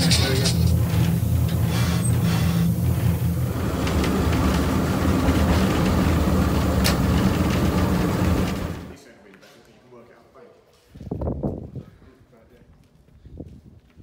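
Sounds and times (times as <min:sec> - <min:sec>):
diesel locomotive engine drone: 0:00.0 - 0:09.0.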